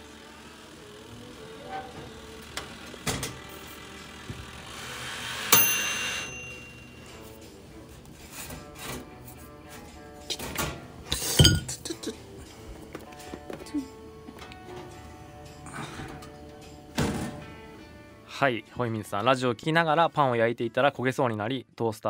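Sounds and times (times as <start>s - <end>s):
bell-like ding: 5.5s - 7.2s.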